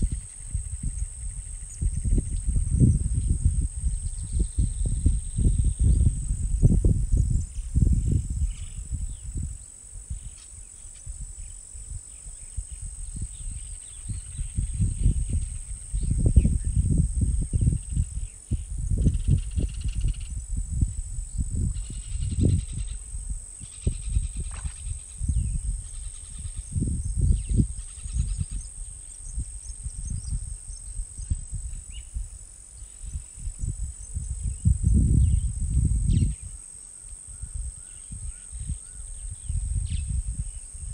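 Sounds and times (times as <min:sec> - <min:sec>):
high-pitched insect drone: 0:00.0 - 0:40.9.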